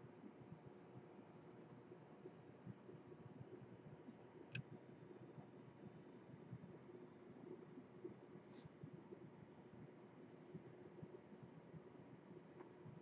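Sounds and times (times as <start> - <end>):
faint steady hum: 0.0 - 13.0
faint high ticks: 2.2 - 3.2, 7.6 - 8.2.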